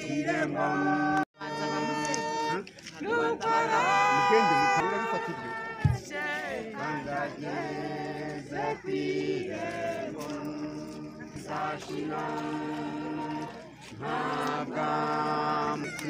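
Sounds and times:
voices singing slow song: 0:00.0 - 0:16.0.

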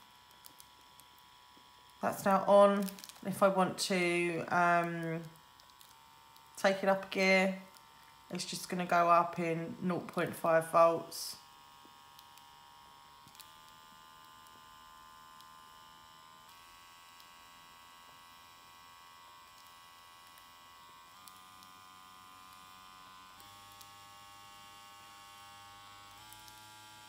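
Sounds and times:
electric motor humming: 0:00.0 - 0:27.0.

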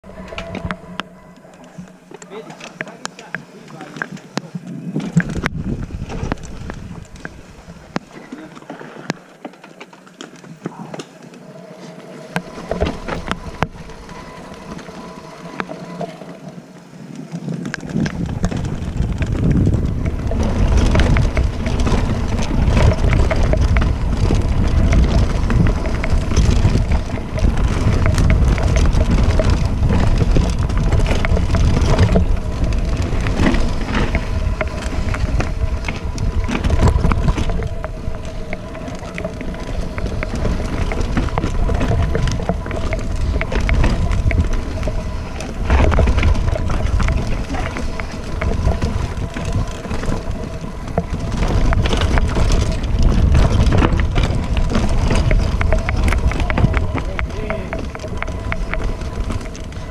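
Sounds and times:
wind buffeting microphone: 0:00.0 - 0:08.2, 0:10.8 - 0:59.9
tyres crunching over stones: 0:00.1 - 0:59.9
bike chain rattling: 0:17.4 - 0:59.9.

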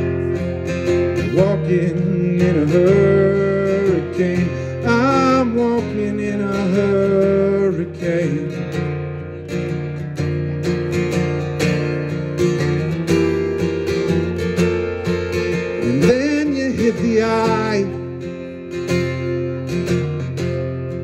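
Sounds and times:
man singing: 0:00.0 - 0:09.1, 0:15.6 - 0:18.6
acoustic guitar strumming: 0:00.0 - 0:21.0.

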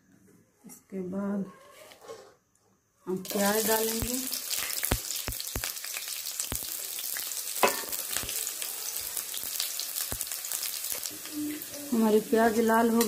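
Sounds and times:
onions sizzling in hot oil: 0:03.2 - 0:13.0
sharp pops: 0:03.9 - 0:06.8.

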